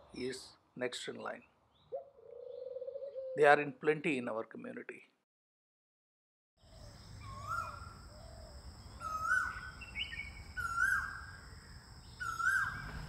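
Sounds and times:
bird calling: 1.7s - 3.4s, 6.7s - 13.0s.

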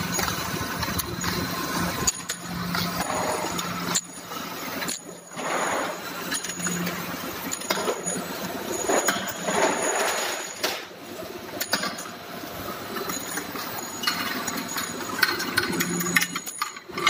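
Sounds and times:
surface grinding machine running: 0.0s - 10.7s.

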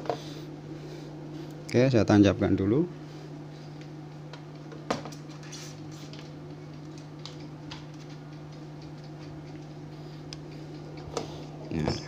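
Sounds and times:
steady low hum: 0.0s - 12.0s
light ticks and rattles: 6.2s - 12.0s.

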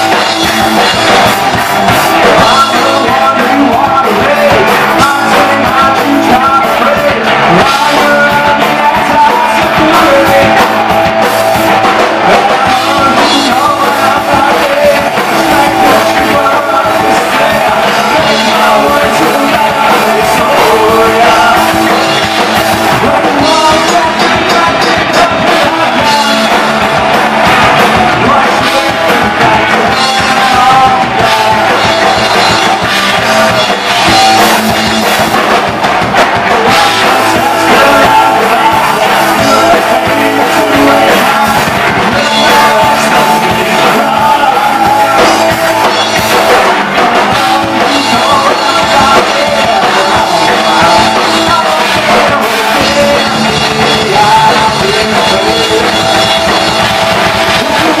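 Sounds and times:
bass guitar: 0.0s - 58.0s
drum kit: 0.0s - 58.0s
electric guitar: 0.0s - 58.0s
person singing: 0.0s - 58.0s.

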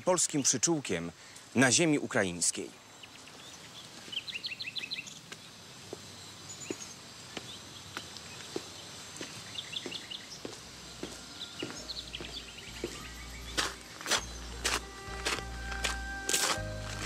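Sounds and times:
small birds chirping: 0.0s - 17.0s
footsteps on stone paving: 5.3s - 17.0s.

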